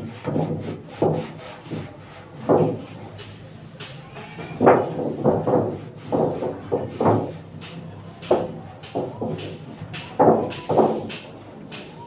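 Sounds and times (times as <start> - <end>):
knocks on sheet-metal ducting: 2.4 - 2.9, 4.5 - 11.3.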